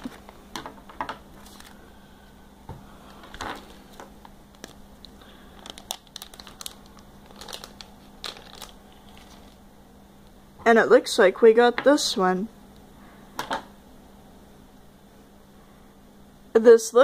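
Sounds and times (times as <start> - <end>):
plastic packet crinkling: 1.3 - 1.8, 3.3 - 9.6.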